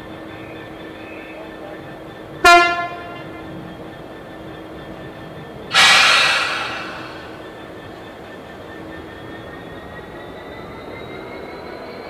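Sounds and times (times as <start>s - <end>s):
locomotive engine humming: 0.0s - 10.7s
locomotive horn toot: 2.4s - 3.2s
compressed air hissing: 5.7s - 7.6s.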